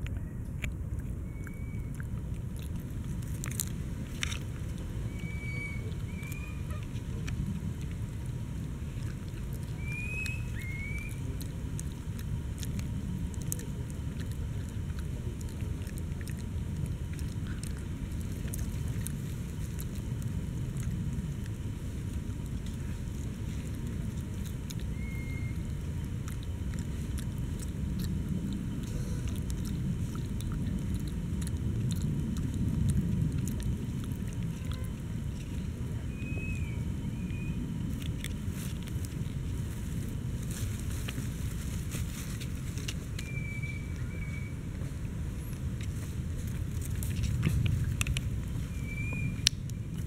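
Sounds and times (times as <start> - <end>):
monkey chewing a dry leaf: 0.0 - 50.0
steady low rumble: 0.0 - 50.0
small clicks and rustles: 37.9 - 43.3, 44.8 - 50.0.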